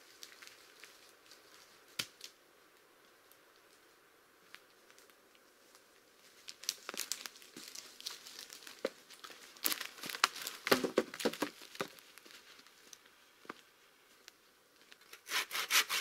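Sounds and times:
footsteps crunching on pine needles: 5.6s - 13.7s.

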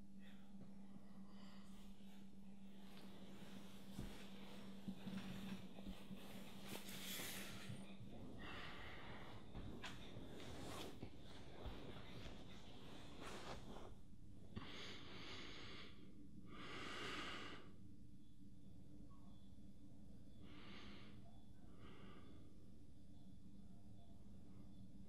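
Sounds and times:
low room hum: 0.0s - 25.0s
man breathing through nose: 3.6s - 11.0s, 14.6s - 17.8s.

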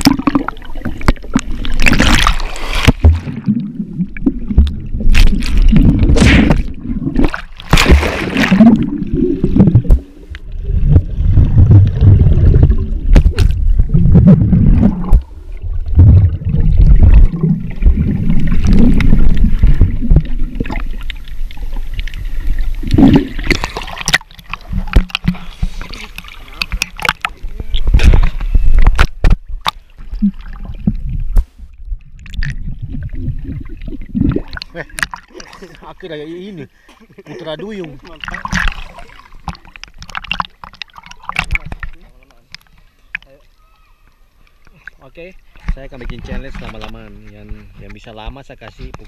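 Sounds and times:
sharp splashes: 0.0s - 10.2s
underwater water churning: 0.0s - 35.9s, 37.8s - 43.2s.

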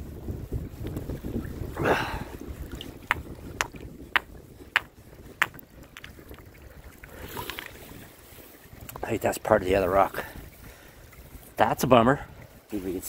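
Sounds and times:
stones clicking together: 3.1s - 6.2s.

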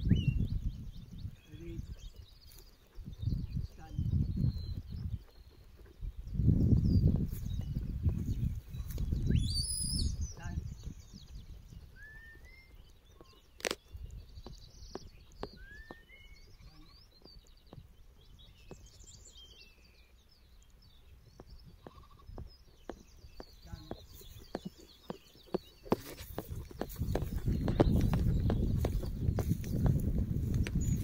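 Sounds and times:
wind rumble on microphone: 0.0s - 19.6s, 20.3s - 31.0s
sharp clicks: 13.2s - 16.0s.

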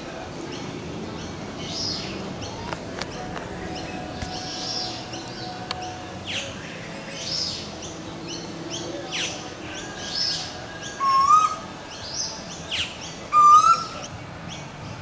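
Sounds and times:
bird high chirps: 10.0s - 14.1s
bird rising whistled calls: 13.3s - 14.0s.

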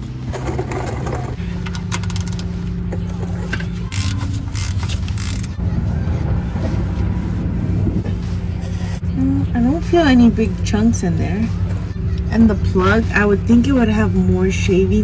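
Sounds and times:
ratchet wrench clicking: 3.9s - 5.6s.

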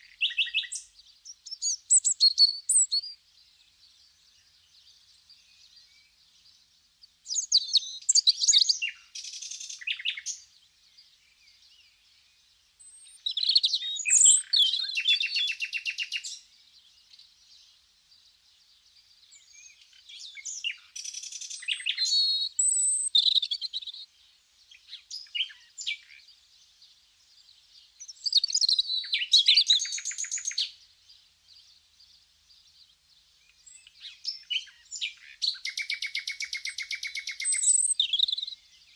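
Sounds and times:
songbird chirping and trilling: 0.0s - 38.9s.

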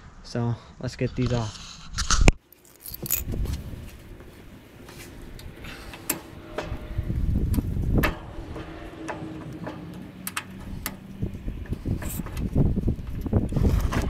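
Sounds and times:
metal clicks and clinks: 2.5s - 3.3s
low rumble: 5.1s - 14.0s.

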